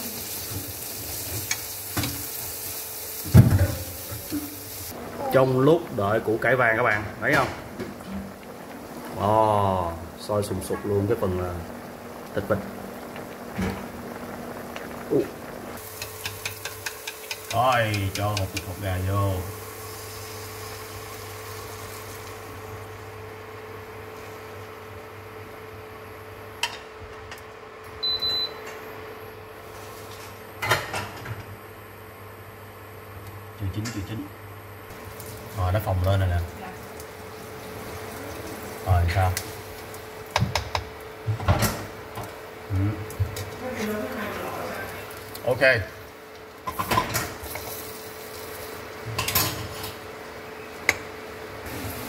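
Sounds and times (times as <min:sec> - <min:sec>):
omelette frying: 0:00.0 - 0:25.2, 0:34.9 - 0:52.0
steady hum: 0:03.2 - 0:30.6.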